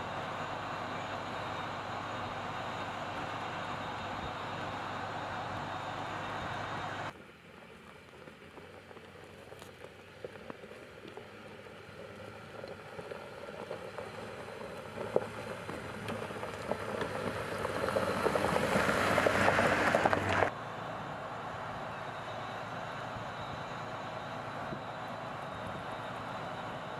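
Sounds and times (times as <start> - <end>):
tyres crunching over gravel: 0.2 - 20.5.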